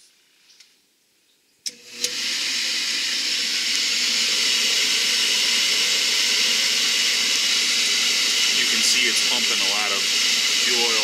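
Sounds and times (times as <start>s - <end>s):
burner motor rushing hiss: 1.7s - 11.0s.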